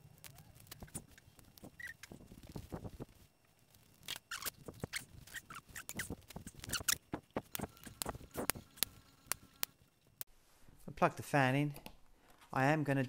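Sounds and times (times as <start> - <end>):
wires clicking and rustling: 0.0 - 10.3.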